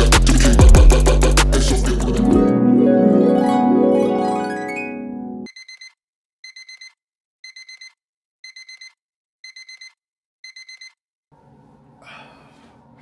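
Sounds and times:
phone alarm beeping: 0:05.5 - 0:11.0.

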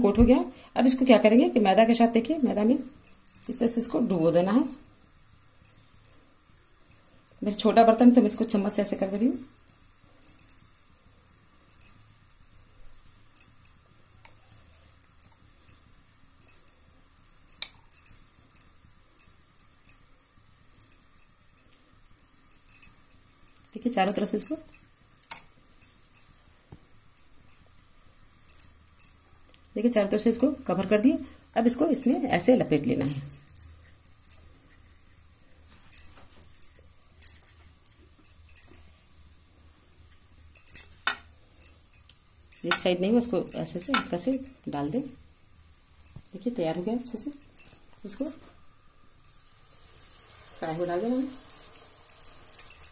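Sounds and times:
spoon clinking on glass bowl: 0:51.3 - 0:52.9.

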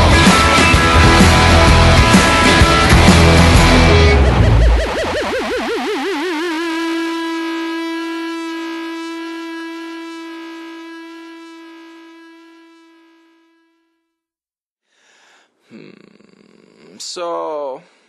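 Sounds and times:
music long held note: 0:00.0 - 0:14.1.

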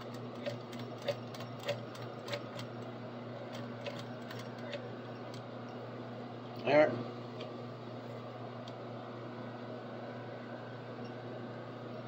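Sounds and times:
sewing machine needle clicks: 0:00.0 - 0:02.7
sewing machine motor hum: 0:00.0 - 0:05.8.

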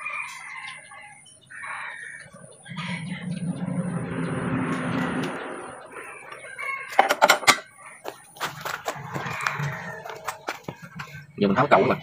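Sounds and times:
rooster crowing: 0:00.0 - 0:03.4, 0:06.0 - 0:11.0.

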